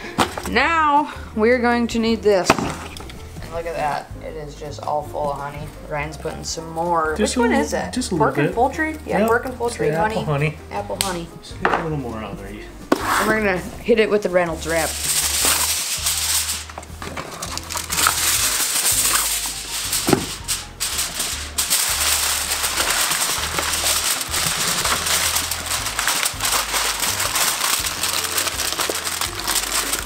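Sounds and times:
background music: 0.0s - 30.0s
aluminium foil crinkling: 14.5s - 30.0s.

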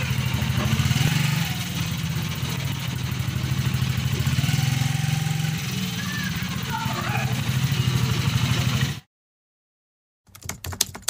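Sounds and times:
motorcycle engine idling: 0.0s - 9.0s.

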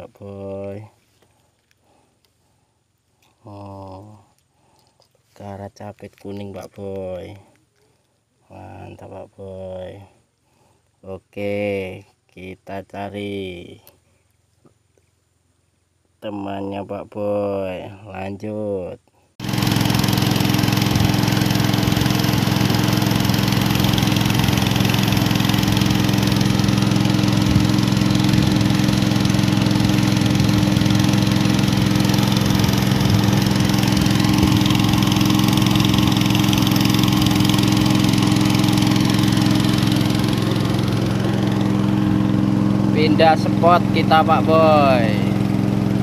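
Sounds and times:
boat engine droning: 19.4s - 46.0s.

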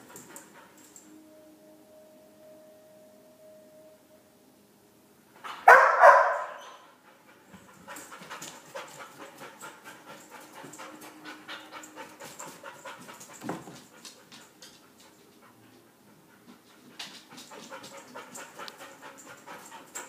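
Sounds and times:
dog panting: 7.0s - 20.0s.

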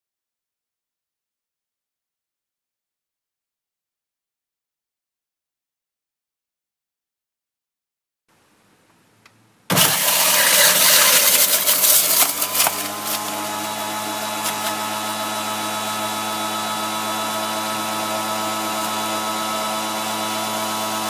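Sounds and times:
electric juicer motor running: 9.7s - 21.0s.

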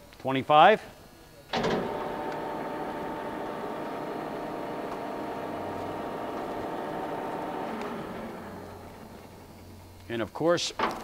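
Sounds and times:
grinder motor whine and hum: 1.5s - 10.1s.

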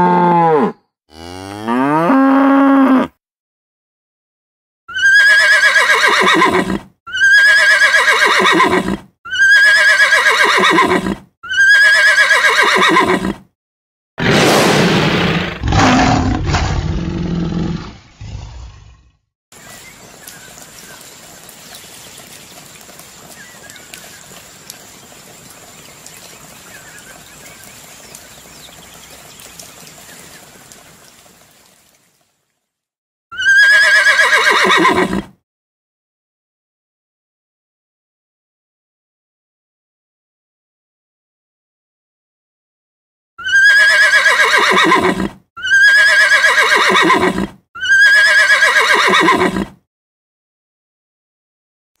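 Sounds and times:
horse neighing: 4.9s - 13.4s, 33.3s - 35.3s, 43.4s - 49.8s
water splashing and dripping: 19.6s - 32.8s.

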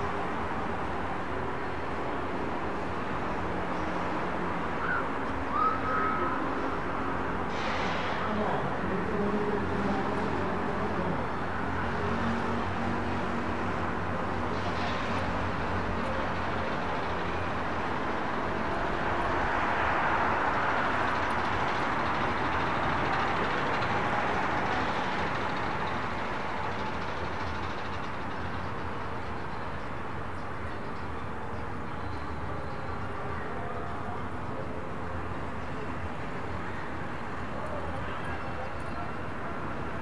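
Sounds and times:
train rumbling past: 0.0s - 40.0s.

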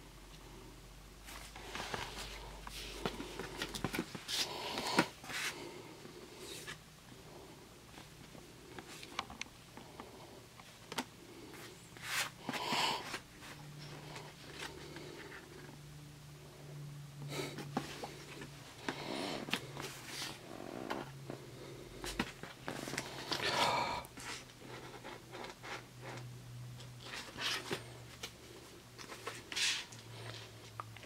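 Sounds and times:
cards and paper rustling: 1.4s - 5.6s, 27.0s - 30.5s.

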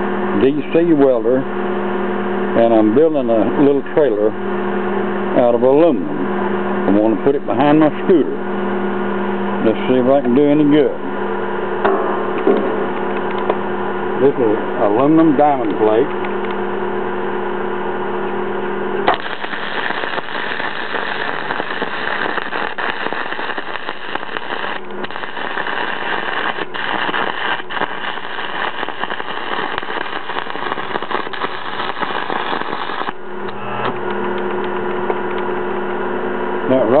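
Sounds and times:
welder humming: 0.0s - 37.0s
welding arc crackling: 19.0s - 33.6s.

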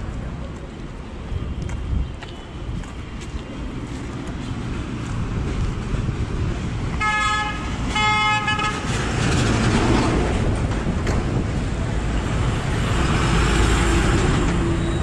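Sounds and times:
street traffic noise: 0.0s - 15.0s
vehicle horn honking: 7.0s - 8.9s.

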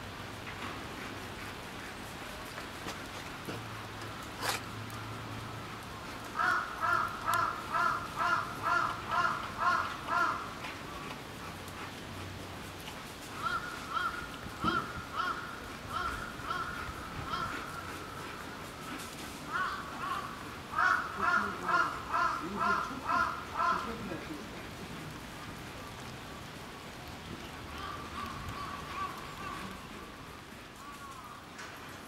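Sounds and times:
crow cawing: 6.4s - 10.6s, 13.4s - 18.2s, 19.5s - 24.0s, 27.8s - 29.9s.

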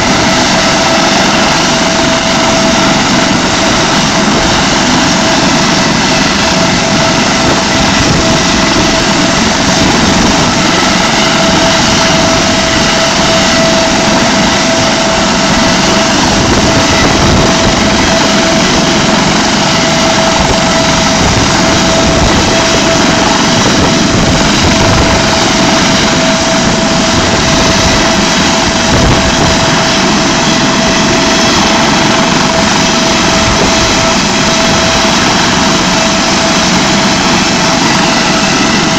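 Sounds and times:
helicopter rotor and engine noise: 0.0s - 38.9s
helicopter turbine whine: 0.0s - 38.9s.

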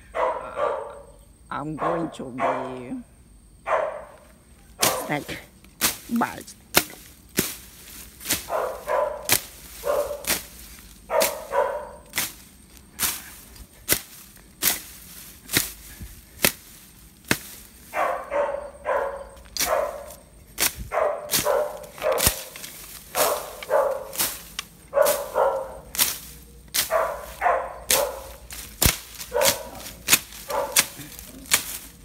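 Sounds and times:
machete slashing through grass: 4.8s - 18.2s, 19.4s - 32.0s.

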